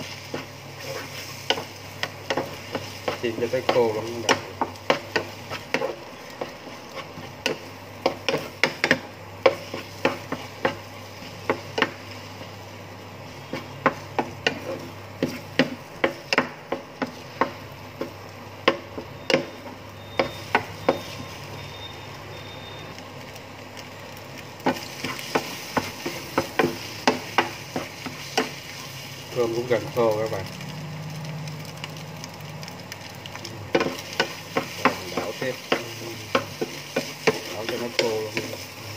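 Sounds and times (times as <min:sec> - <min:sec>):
faint food sizzle: 0:00.0 - 0:38.9
wooden spatula knocking frying pan: 0:01.5 - 0:06.6, 0:07.4 - 0:12.0, 0:13.5 - 0:21.2, 0:24.6 - 0:28.6, 0:33.7 - 0:38.6.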